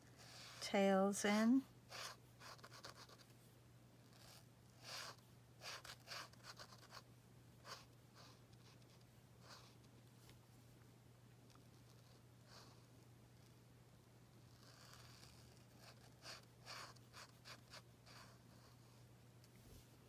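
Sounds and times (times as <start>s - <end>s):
low steady hum: 0.0s - 20.0s
marker scratching on card: 1.9s - 3.3s, 4.1s - 7.0s, 7.6s - 9.9s, 14.4s - 18.9s.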